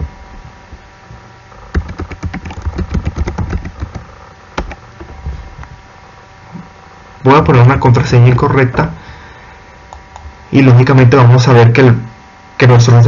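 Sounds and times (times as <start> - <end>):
low steady hum: 0.0 - 13.0
keyboard typing: 1.7 - 4.8.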